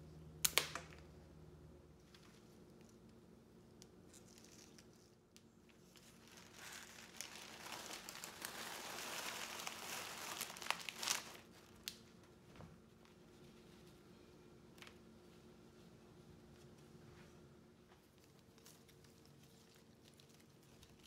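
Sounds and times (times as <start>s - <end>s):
paper crinkling: 4.0s - 14.0s, 18.0s - 21.0s
paper crackles: 5.7s - 12.3s, 18.0s - 21.0s.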